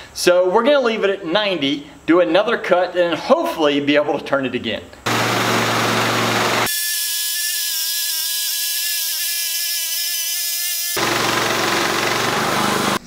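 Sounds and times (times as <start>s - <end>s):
sawmill engine running: 5.1s - 6.8s, 10.9s - 13.0s
band saw blade whine: 5.1s - 13.0s.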